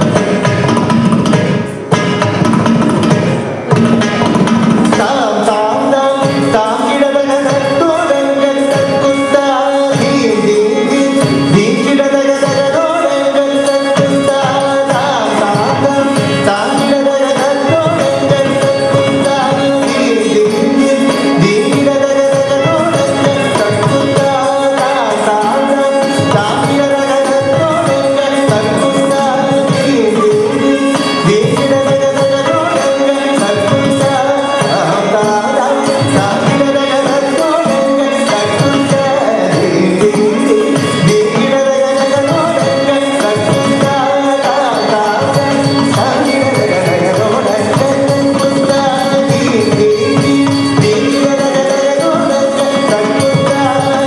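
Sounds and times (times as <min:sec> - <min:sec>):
drums: 0:00.0 - 0:05.1
person singing: 0:04.8 - 0:54.0.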